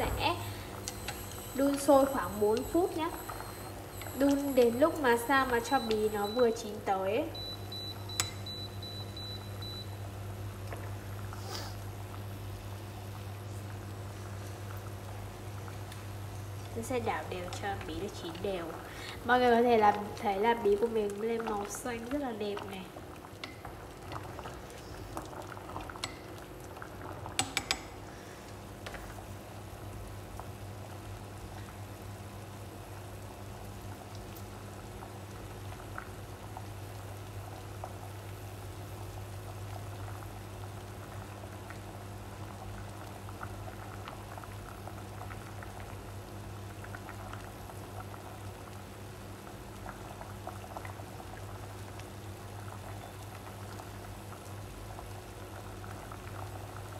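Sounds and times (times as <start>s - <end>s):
steady low hum: 0.0s - 31.8s
water boiling and bubbling: 0.0s - 56.9s
chopsticks clicking in pot: 8.2s - 8.4s, 27.4s - 27.9s.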